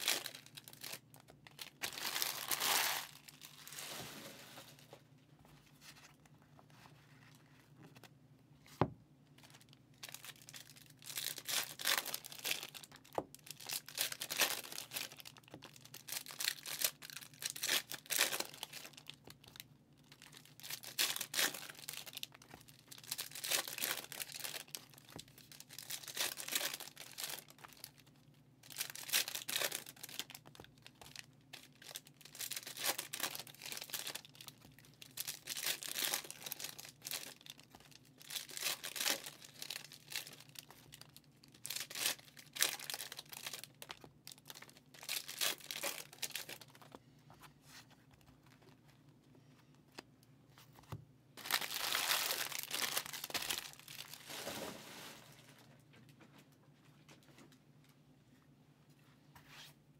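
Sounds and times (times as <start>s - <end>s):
foil wrappers tearing and crinkling: 0.0s - 4.1s, 9.6s - 19.6s, 20.2s - 28.0s, 28.6s - 46.9s, 51.4s - 54.7s.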